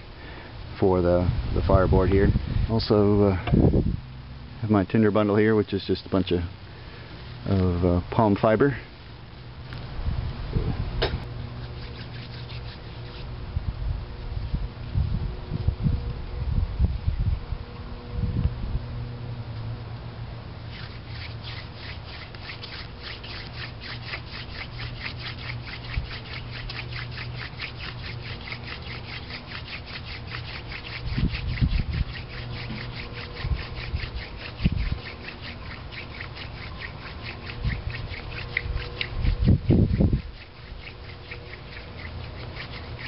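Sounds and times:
wooden spindle rasping on board: 0:11.6 - 0:13.3, 0:20.7 - 0:43.0.

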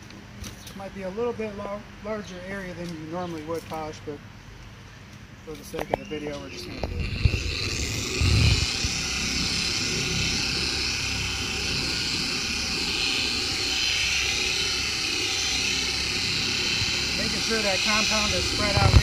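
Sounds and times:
electric polisher running: 0:06.6 - 0:19.0.

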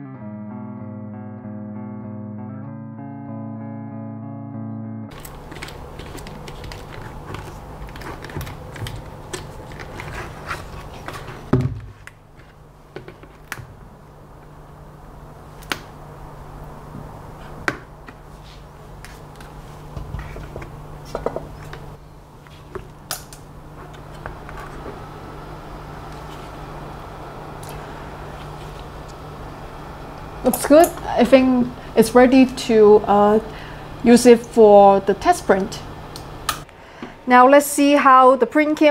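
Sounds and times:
steady low hum: 0:00.0 - 0:38.9.

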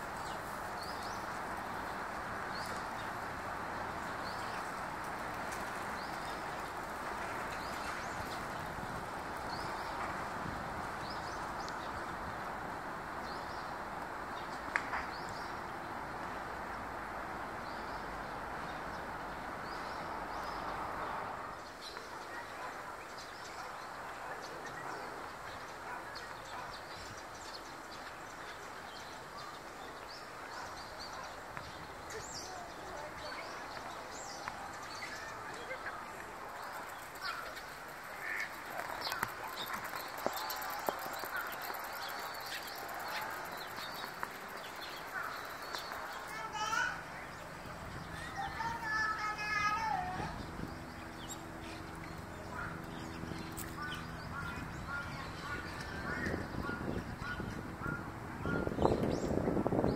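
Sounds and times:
sparrows chirping: 0:00.2 - 0:04.8, 0:21.6 - 0:59.9.

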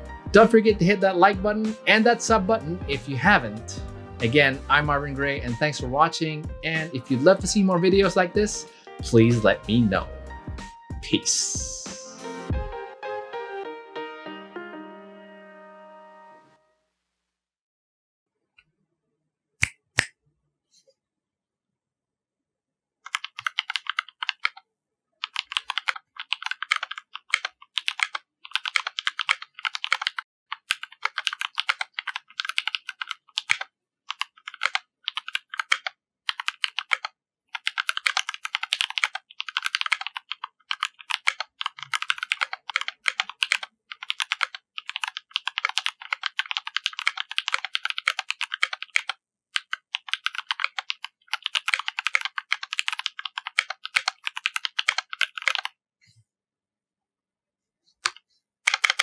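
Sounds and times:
fast mechanical keyboard typing: 0:23.1 - 0:24.6, 0:25.2 - 0:55.7, 0:58.7 - 0:59.0.

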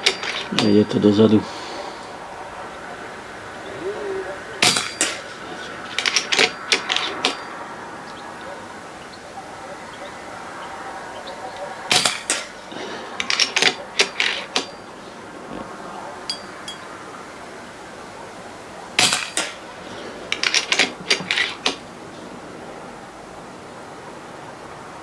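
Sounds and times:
air rifle shots: 0:04.6 - 0:05.4, 0:11.9 - 0:12.6, 0:19.0 - 0:19.6.

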